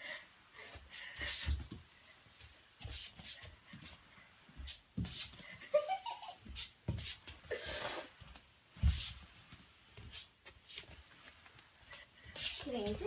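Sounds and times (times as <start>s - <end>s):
dog sliding on floor: 0.6s - 5.7s, 6.4s - 13.0s.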